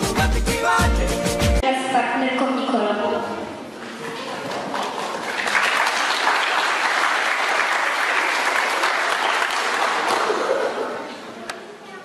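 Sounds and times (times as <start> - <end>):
children clapping: 4.0 - 10.9.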